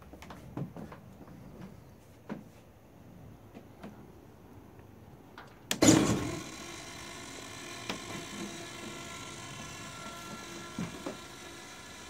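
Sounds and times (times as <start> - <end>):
electrical hum with held tones: 5.7 - 12.0.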